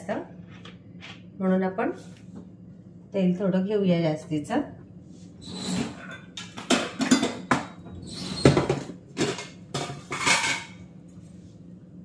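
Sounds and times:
metal kitchenware clinking: 5.7 - 10.8.

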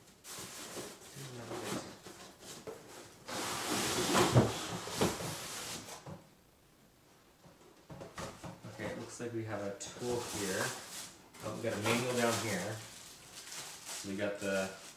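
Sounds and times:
cardboard scraping and rubbing: 0.3 - 6.0, 10.0 - 14.7.

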